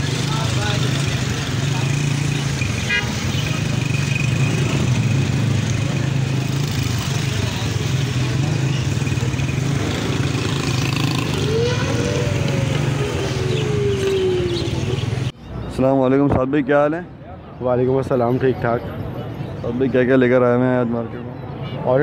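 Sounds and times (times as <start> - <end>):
crowd chatter: 0.0 - 15.7
motorcycle and car engines humming: 0.0 - 15.8
pitched tone rising and falling: 11.2 - 15.3.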